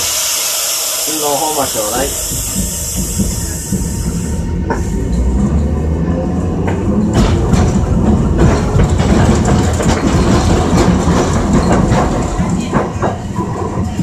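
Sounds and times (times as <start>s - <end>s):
streetcar motor and wheels rumbling: 0.0s - 14.0s
wheels clicking over rail joints: 6.5s - 14.0s.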